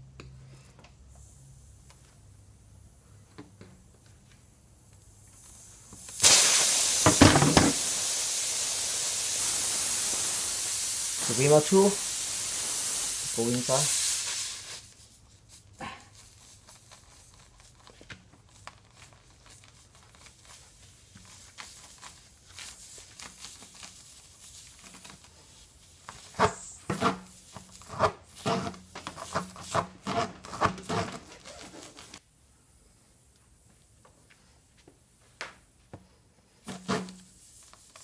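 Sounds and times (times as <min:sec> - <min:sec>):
air hissing from puncture: 0:01.1 - 0:30.0, 0:36.5 - 0:38.0.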